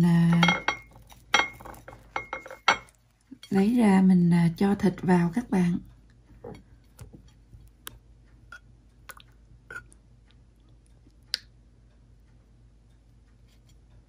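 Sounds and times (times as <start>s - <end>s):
hands handling bread on a plate: 0.4s - 3.0s.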